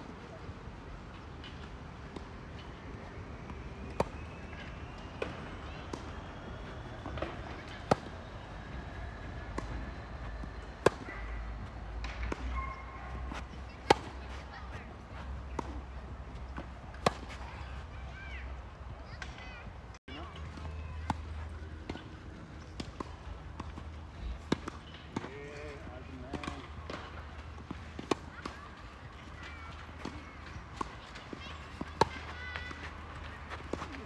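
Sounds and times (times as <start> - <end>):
racket hitting tennis ball: 10.8 - 12.6.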